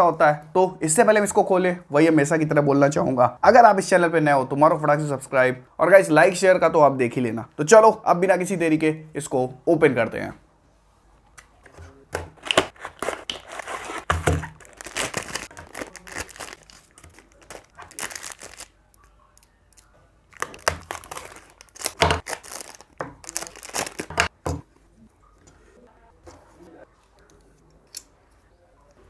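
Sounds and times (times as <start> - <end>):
cardboard and plastic crinkling: 12.3 - 18.7, 20.3 - 24.3.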